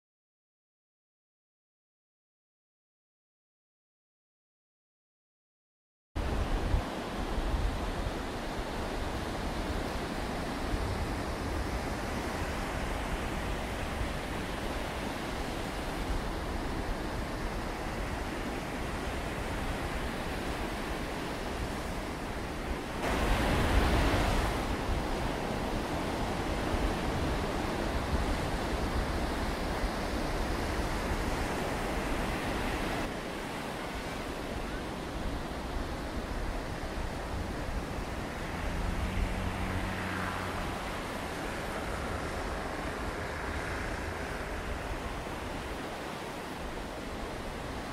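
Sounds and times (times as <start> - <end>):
surf washing on beach: 6.2 - 47.9
wind buffeting microphone: 6.2 - 47.9.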